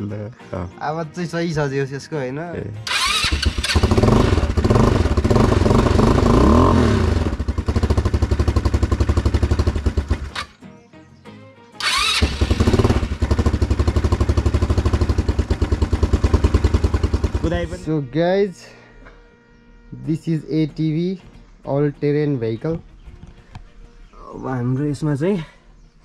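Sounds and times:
quad bike engine revving: 0:02.8 - 0:10.6, 0:11.8 - 0:17.9.

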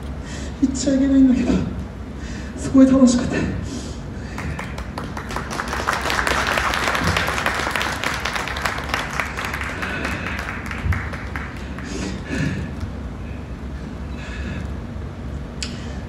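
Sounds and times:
audience applauding: 0:04.4 - 0:12.9.

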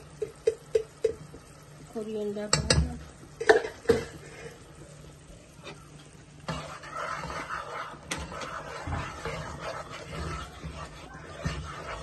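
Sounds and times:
onions sizzling in oil: 0:00.0 - 0:12.0
spoon knocking against pan: 0:00.2 - 0:01.5, 0:02.5 - 0:04.1.

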